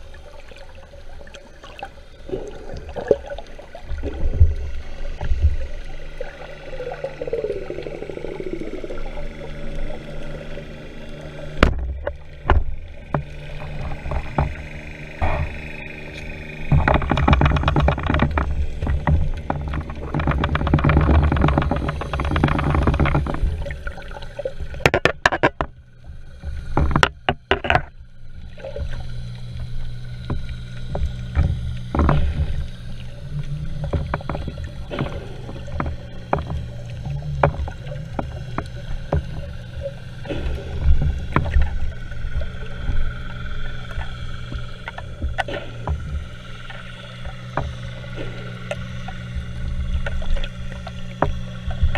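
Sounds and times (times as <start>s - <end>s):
steady low hum: 0.0s - 51.9s
water rumbling against camera housing: 0.0s - 51.9s
clicks and knocks: 16.7s - 24.0s, 24.8s - 25.8s, 26.7s - 27.9s.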